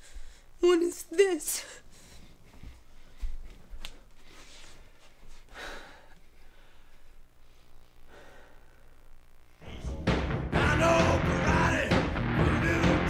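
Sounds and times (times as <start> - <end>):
person breathing and sighing: 4.3 - 7.2, 8.0 - 9.0.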